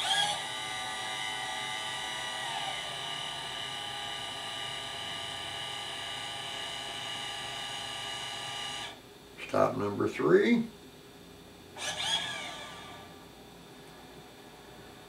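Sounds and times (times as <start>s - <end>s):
motors whining: 0.0s - 9.0s, 11.8s - 13.2s.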